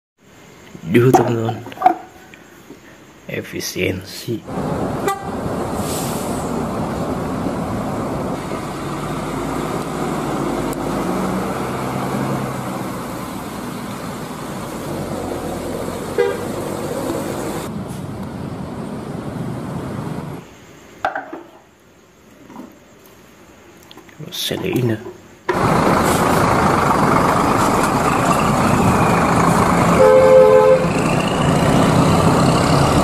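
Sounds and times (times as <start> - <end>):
road noise: 0.2 - 33.0
diesel coach engines: 4.4 - 20.7, 24.4 - 33.0
short horn toots: 16.2 - 16.5, 29.9 - 30.9.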